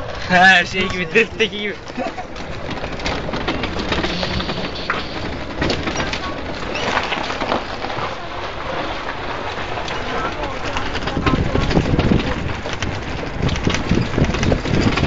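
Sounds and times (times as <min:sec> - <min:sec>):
tyres crunching on gravel: 0:00.0 - 0:15.0.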